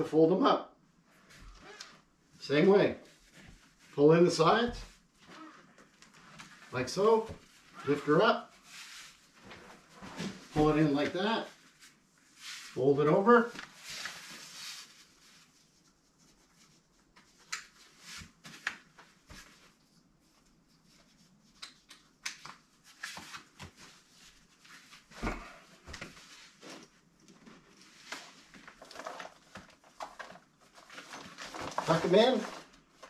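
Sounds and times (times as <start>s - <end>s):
nylon cover rustling: 3.0s - 16.9s, 22.8s - 33.0s.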